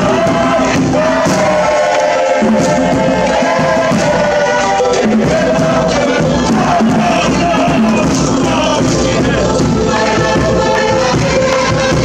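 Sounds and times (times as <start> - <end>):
group chanting in unison: 0.0 - 12.0
large skin drum strokes: 0.0 - 12.0.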